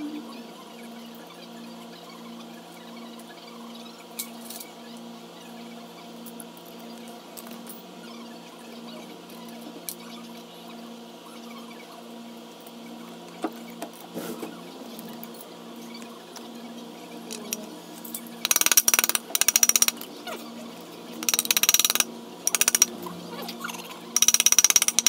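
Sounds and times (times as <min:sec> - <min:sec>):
ratchet wrench clicking: 0:18.4 - 0:20.0, 0:21.2 - 0:22.9, 0:24.2 - 0:25.0.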